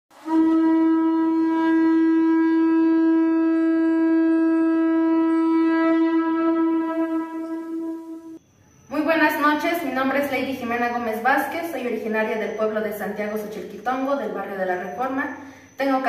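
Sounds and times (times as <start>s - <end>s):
long horn note: 0.2s - 8.4s.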